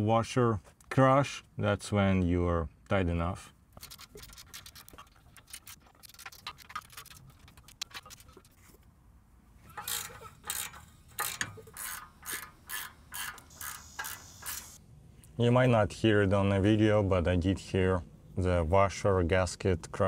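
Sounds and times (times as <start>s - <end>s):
ratcheting wrench clicking: 9.7s - 14.8s.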